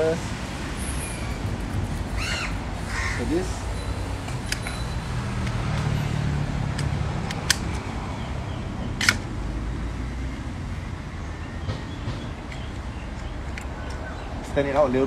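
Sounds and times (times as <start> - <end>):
passing vehicle engine hum: 0.0 - 14.6
sharp clicks: 6.7 - 7.9, 9.0 - 9.3.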